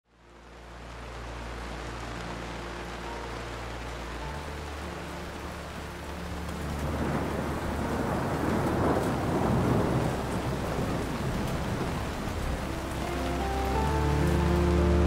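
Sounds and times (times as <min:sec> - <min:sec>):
rain: 0:00.0 - 0:15.0
rolling thunder: 0:06.6 - 0:13.0.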